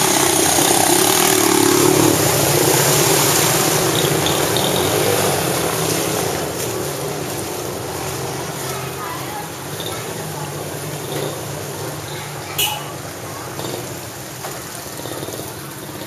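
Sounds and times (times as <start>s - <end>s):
steady rushing noise: 0.0s - 9.7s
motorbike engines running: 0.0s - 16.0s
water splashing: 0.0s - 16.0s.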